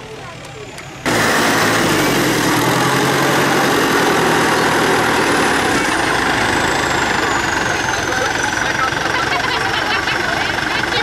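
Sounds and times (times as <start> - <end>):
small tractor engine running: 0.0 - 11.0.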